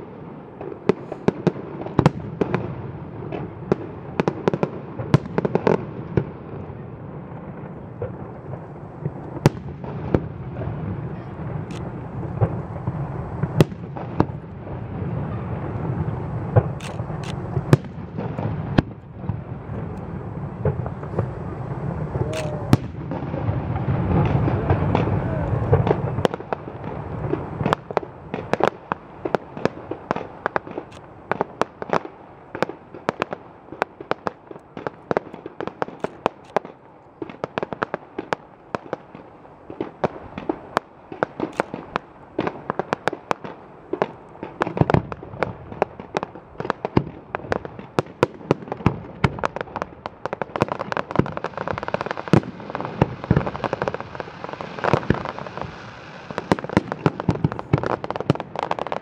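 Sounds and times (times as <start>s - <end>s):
fireworks bangs and crackles: 0.0s - 59.0s.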